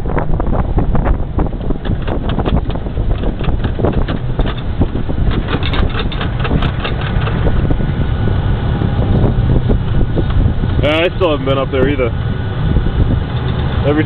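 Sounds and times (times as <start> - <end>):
diesel engine rumble: 0.0 - 14.0
tyres on road: 0.0 - 14.0
wind buffeting microphone: 0.0 - 14.0
short rattles and clicks: 1.6 - 7.7, 13.3 - 14.0.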